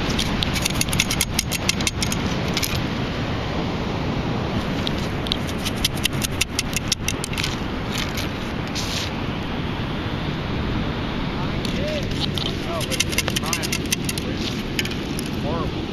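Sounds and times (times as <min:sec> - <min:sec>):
sand rattling in metal scoop: 0:00.0 - 0:02.8, 0:04.7 - 0:09.1, 0:11.7 - 0:15.4
steady background rush: 0:00.0 - 0:15.9.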